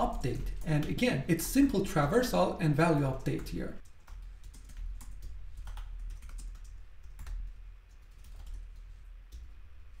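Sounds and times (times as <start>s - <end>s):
low steady hum: 0.0s - 10.0s
typing on computer keyboard: 3.2s - 9.5s.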